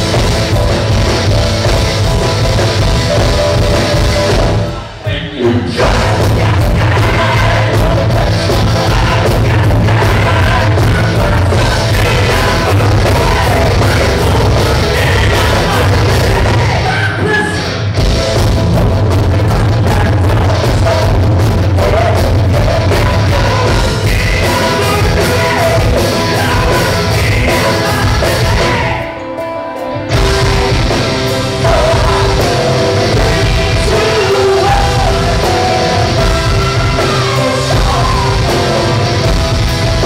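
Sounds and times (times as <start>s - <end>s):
live rock band playing: 0.0s - 40.0s
person singing and yelling: 4.7s - 17.8s, 19.5s - 29.3s, 30.2s - 39.4s.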